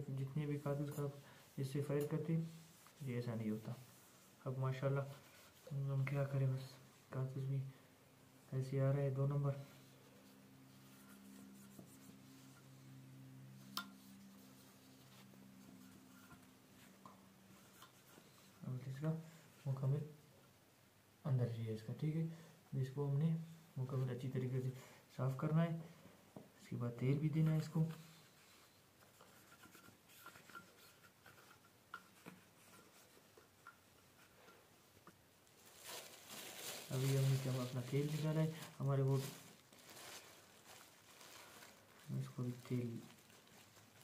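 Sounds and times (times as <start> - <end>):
faint clicks and rubbing: 27.9 - 35.6.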